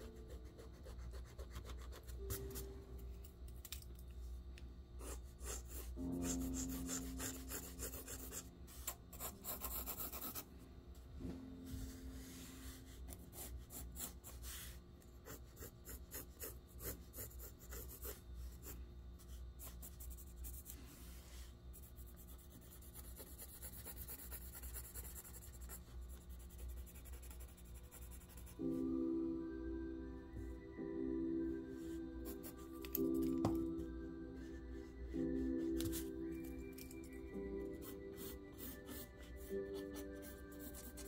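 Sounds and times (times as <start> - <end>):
pencil scratching on paper: 0.0 - 2.6, 5.0 - 10.5, 12.6 - 20.8, 21.8 - 28.6, 37.8 - 41.0.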